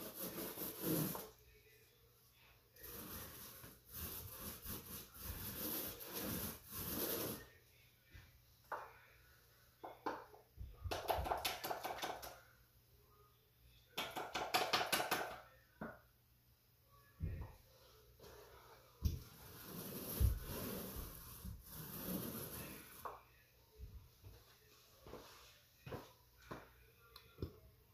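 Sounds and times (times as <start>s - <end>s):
paint roller rasping on wall: 0.0s - 1.3s, 2.8s - 7.5s, 19.2s - 23.1s.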